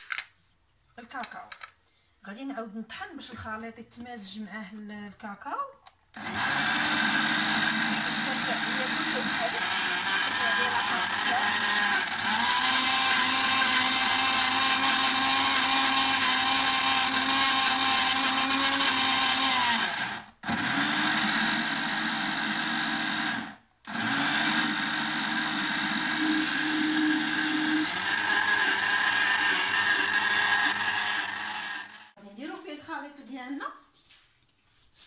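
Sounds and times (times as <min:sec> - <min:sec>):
blender motor running: 0:06.2 - 0:32.2.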